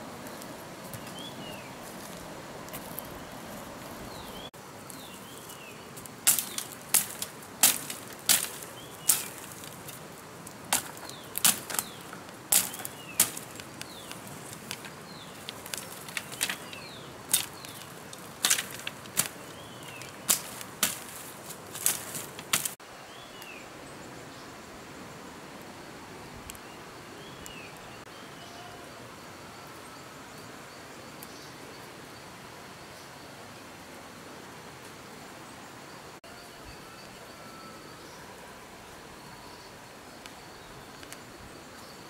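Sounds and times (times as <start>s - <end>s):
bird chirping: 2.8s - 9.9s, 10.8s - 22.4s
dry twigs snapping: 4.9s - 22.8s.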